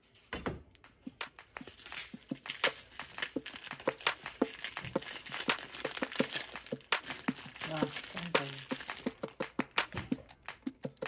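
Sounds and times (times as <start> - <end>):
plastic wrapper crinkling and tearing: 1.4 - 9.5.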